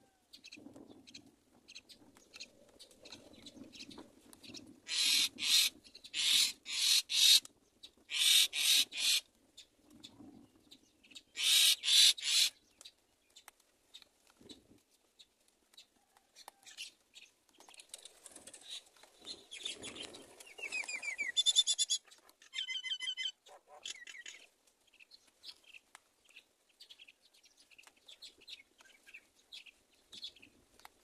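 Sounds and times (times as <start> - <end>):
baby bird hissing begging calls: 4.9 - 7.4, 8.1 - 9.2, 11.4 - 12.5.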